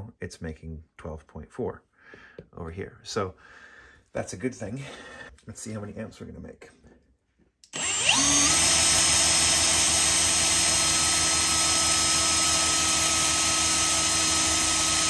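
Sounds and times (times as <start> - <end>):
cordless drill whining: 7.7 - 15.0.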